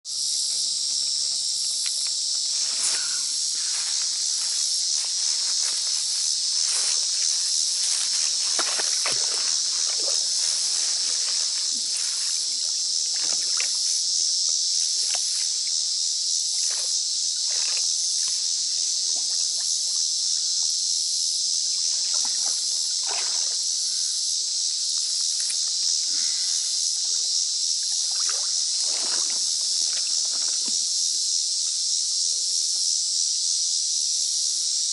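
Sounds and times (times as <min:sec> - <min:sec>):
high-pitched insect chorus: 0:00.0 - 0:34.9
water splashing and sloshing: 0:06.5 - 0:12.0, 0:13.0 - 0:13.9, 0:21.8 - 0:23.6, 0:28.0 - 0:30.8.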